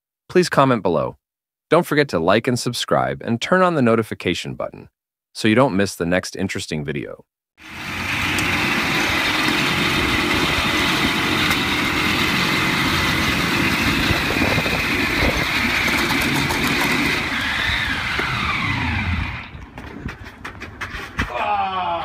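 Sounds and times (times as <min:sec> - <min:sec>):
motorcycle engine running: 0:07.6 - 0:19.9.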